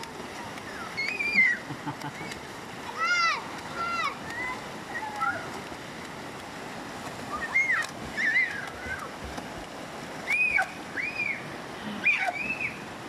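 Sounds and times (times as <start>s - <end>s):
river current rushing: 0.0s - 13.0s
swimmers splashing: 0.0s - 13.0s
children shouting: 7.3s - 9.1s, 12.0s - 12.8s.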